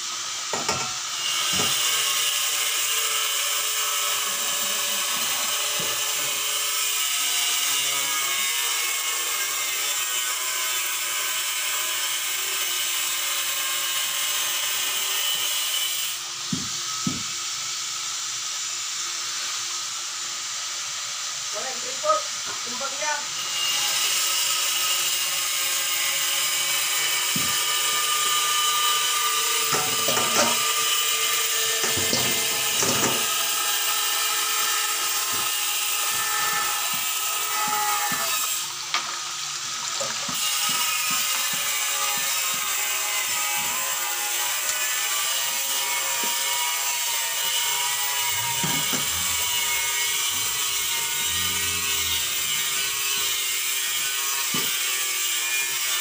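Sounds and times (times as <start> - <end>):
water running into metal sink: 29.6 - 30.8, 31.8 - 41.7, 47.5 - 51.3
knocks and splashes of meat washed: 38.9 - 42.6.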